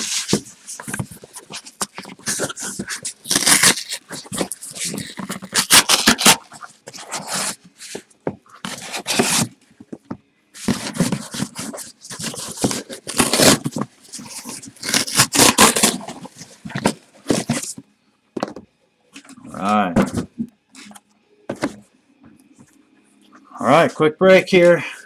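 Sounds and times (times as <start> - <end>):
cardboard boxes scraping and rustling: 0.0 - 9.6, 10.6 - 17.8.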